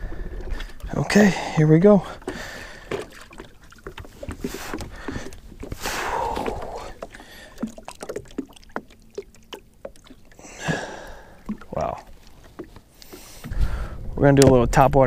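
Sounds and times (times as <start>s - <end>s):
water splashing and lapping: 0.0s - 14.0s
small ticks and knocks: 2.2s - 5.8s, 6.4s - 10.3s, 11.4s - 13.6s.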